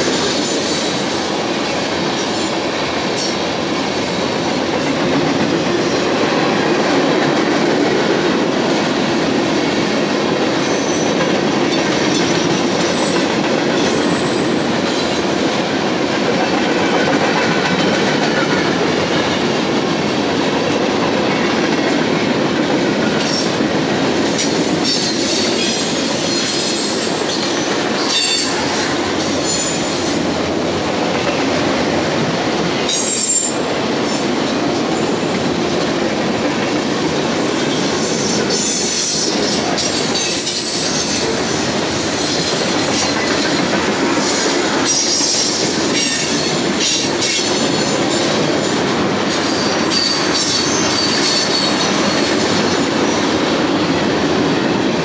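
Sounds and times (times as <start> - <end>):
steel wheels rumbling on rails: 0.0 - 55.0
high wheel squeals: 24.8 - 30.2, 49.3 - 52.6.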